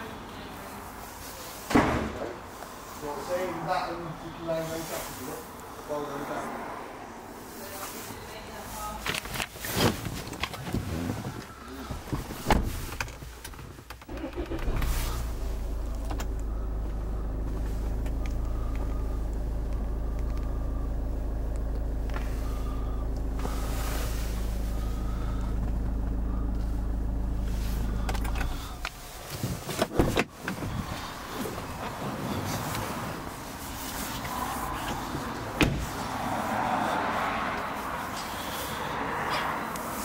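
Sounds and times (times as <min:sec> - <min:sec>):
car engine starting and idling: 0:09.9 - 0:40.0
clicks and knocks of car controls: 0:28.0 - 0:30.9.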